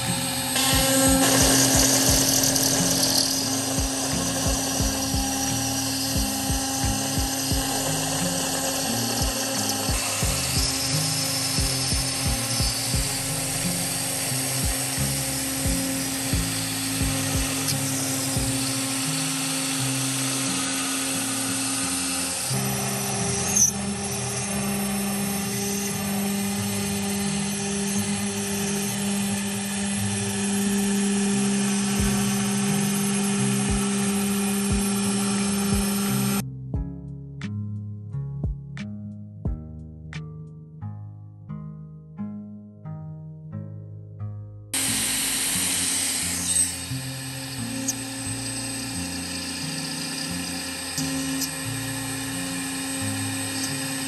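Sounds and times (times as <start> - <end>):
background music with low beat: 0.0 - 21.7, 31.8 - 42.4
router spindle whining: 0.0 - 36.4, 44.8 - 54.0.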